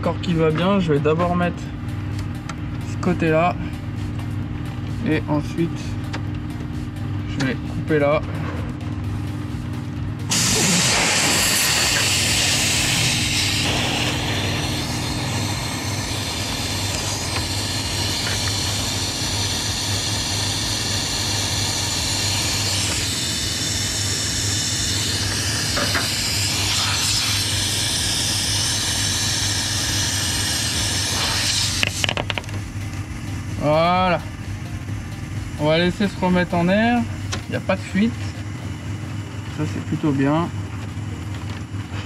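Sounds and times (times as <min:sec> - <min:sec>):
steady low hum: 0:00.0 - 0:42.0
compressed air hissing: 0:10.3 - 0:39.0.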